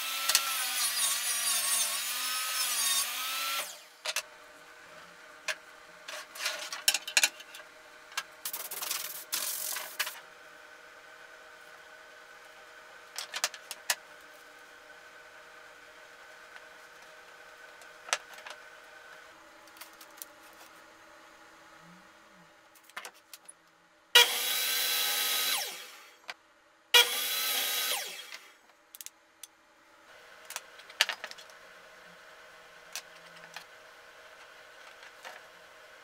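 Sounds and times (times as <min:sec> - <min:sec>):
miter saw cutting wood: 0:00.0 - 0:04.0, 0:24.2 - 0:26.2, 0:27.0 - 0:28.6.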